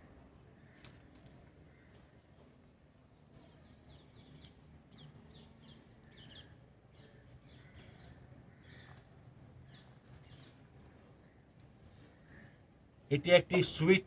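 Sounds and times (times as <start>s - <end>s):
small birds twittering: 3.1s - 12.9s.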